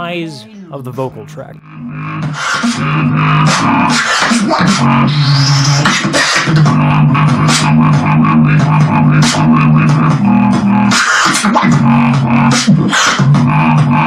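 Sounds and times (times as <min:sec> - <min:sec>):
beatboxing with throat bass: 0:00.0 - 0:14.0.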